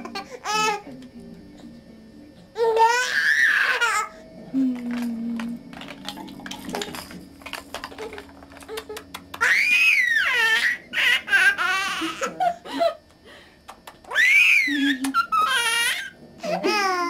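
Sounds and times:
baby laughing: 0.0s - 0.9s, 2.6s - 4.1s, 7.9s - 12.8s, 13.8s - 17.0s
baby squealing: 2.6s - 4.1s, 9.4s - 12.3s, 14.1s - 17.0s.

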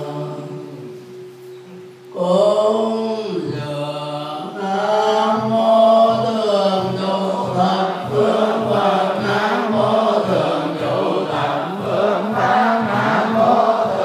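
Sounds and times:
group chanting in unison: 4.5s - 14.0s.

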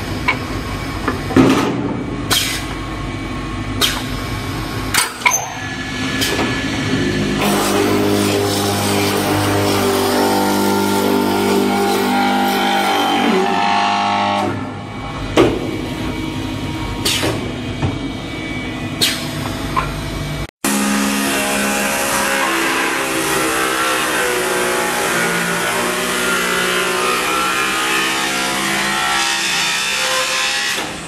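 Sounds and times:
wood lathe cutting: 7.4s - 14.2s, 20.7s - 30.9s.

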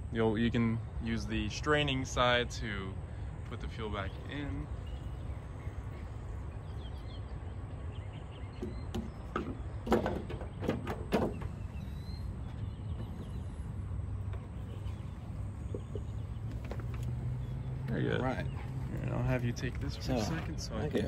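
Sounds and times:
low outdoor rumble: 0.0s - 21.0s
knocks and clunks: 8.5s - 13.6s.

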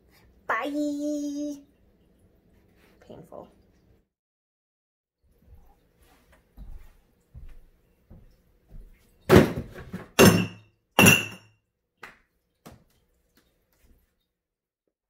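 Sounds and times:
glass bottles clunking into bin: 9.3s - 11.5s.

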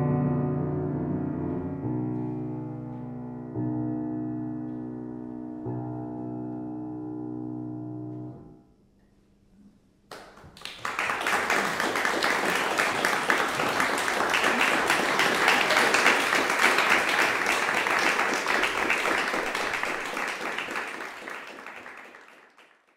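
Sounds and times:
piano chord: 0.0s - 8.8s
audience applause: 10.1s - 22.9s.

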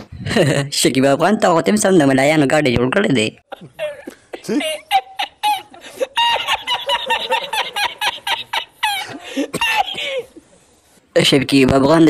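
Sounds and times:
man cackling laughter: 3.5s - 10.4s.

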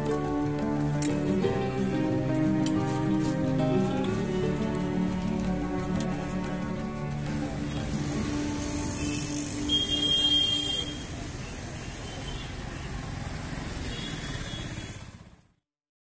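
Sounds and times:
street traffic noise: 0.0s - 15.6s
brief high whine: 8.6s - 11.3s.

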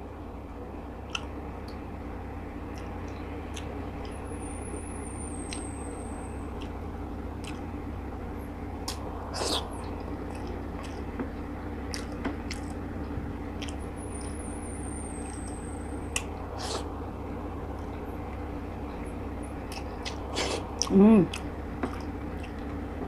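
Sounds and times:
low hum: 0.0s - 23.0s
person chewing: 8.9s - 11.1s, 11.8s - 12.8s, 13.6s - 13.8s, 19.6s - 22.8s.

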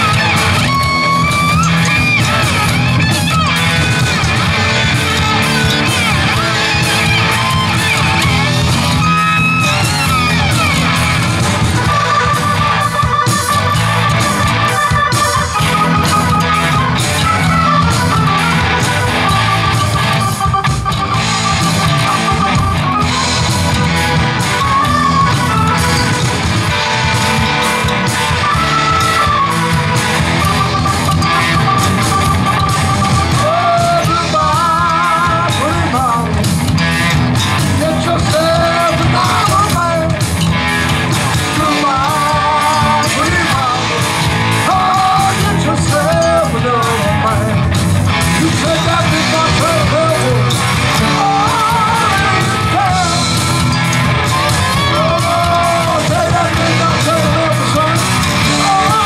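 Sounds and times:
rock band playing: 0.0s - 59.0s
man singing: 21.3s - 59.0s.

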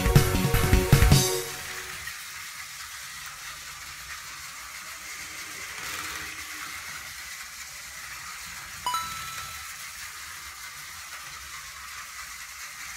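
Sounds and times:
toy train motors whirring: 0.6s - 12.9s
chime: 8.9s - 10.0s.

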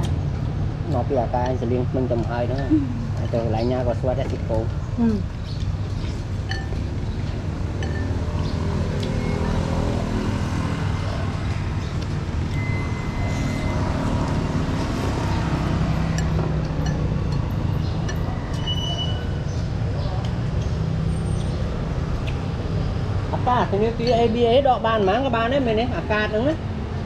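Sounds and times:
road traffic rumble: 0.0s - 27.0s
utensils clinking: 6.5s - 6.9s, 7.7s - 8.2s, 16.0s - 19.4s.

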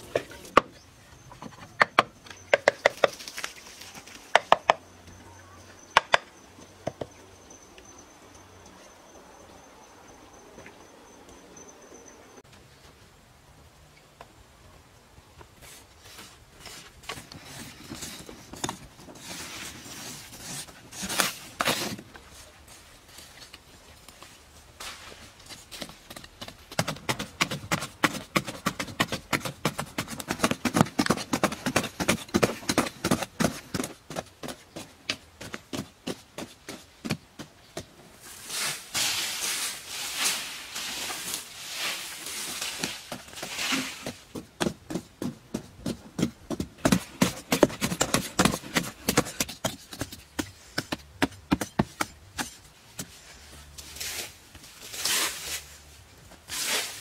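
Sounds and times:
dirt scraping and hissing: 15.6s - 23.5s, 38.1s - 44.4s, 52.4s - 57.0s
hoes chopping into dry earth: 42.8s - 53.1s.

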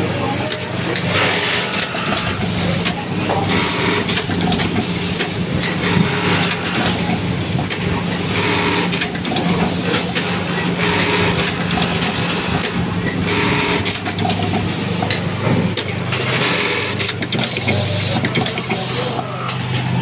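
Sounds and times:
button-sewing machine bursts: 8.4s - 15.2s, 16.3s - 19.2s.

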